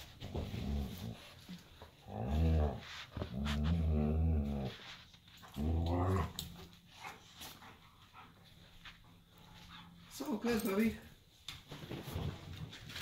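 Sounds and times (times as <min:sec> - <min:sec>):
dogs growling: 0:00.3 - 0:06.7.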